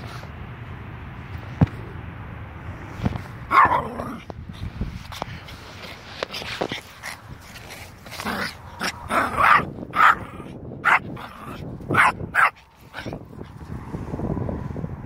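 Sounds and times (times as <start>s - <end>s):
small dog barking: 3.5s - 4.2s, 8.4s - 13.2s.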